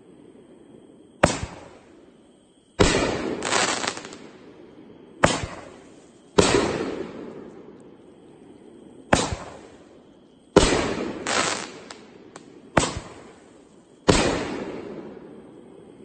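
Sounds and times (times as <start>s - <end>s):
fireworks bangs: 1.2s - 2.0s, 2.8s - 4.4s, 5.2s - 7.5s, 9.1s - 9.9s, 10.5s - 15.2s.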